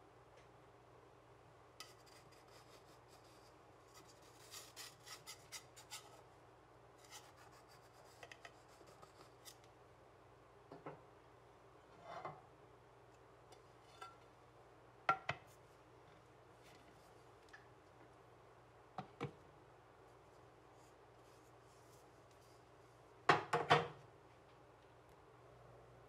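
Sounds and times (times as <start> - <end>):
knife scraping metal cake pan: 1.8 - 6.2, 7.0 - 9.6.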